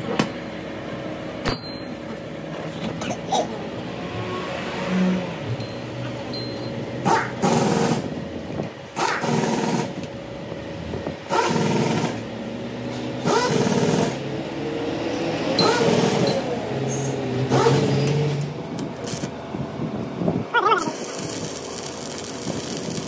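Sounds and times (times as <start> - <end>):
welding arc crackling: 13.2 - 14.4, 17.4 - 19.4, 20.8 - 23.0
steady hum: 18.3 - 23.0.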